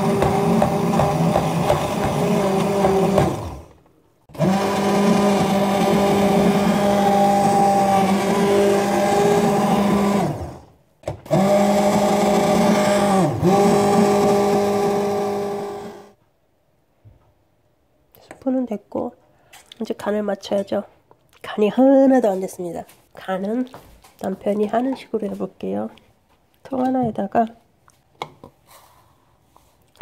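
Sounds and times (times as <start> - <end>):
immersion blender motor running: 0.0 - 3.7, 4.3 - 16.2.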